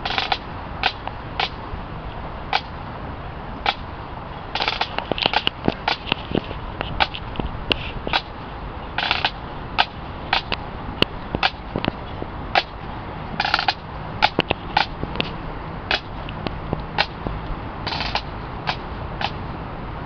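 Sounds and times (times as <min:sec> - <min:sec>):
snare drums marching beat: 0:00.0 - 0:01.6, 0:04.6 - 0:06.0, 0:08.1 - 0:08.3, 0:09.0 - 0:10.5, 0:11.4 - 0:11.7, 0:12.6 - 0:12.8, 0:13.4 - 0:15.1, 0:17.0 - 0:17.2, 0:17.9 - 0:19.4.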